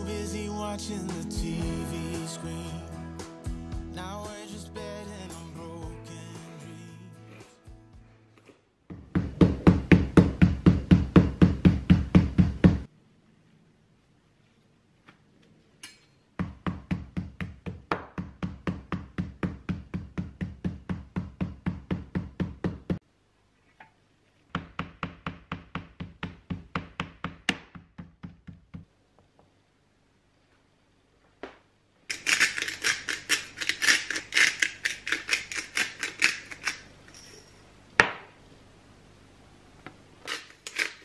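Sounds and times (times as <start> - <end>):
meat being pounded: 8.9 - 12.9, 16.4 - 23.0, 24.6 - 28.9.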